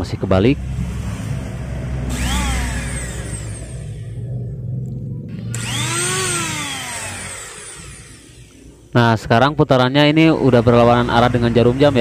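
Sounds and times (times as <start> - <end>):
angle grinder whine: 2.1 - 4.4, 5.3 - 9.0.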